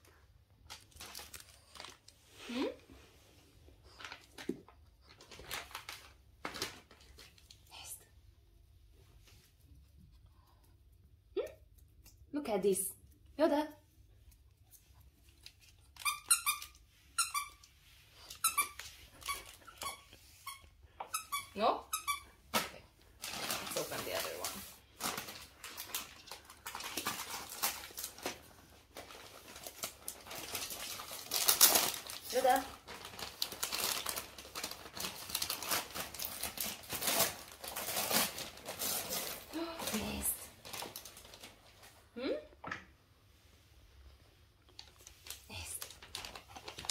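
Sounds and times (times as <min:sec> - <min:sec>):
wrapping paper crinkling: 0:00.6 - 0:02.6, 0:03.4 - 0:07.6, 0:23.0 - 0:42.0, 0:44.7 - 0:46.9
dog toy squeaking: 0:16.0 - 0:17.6.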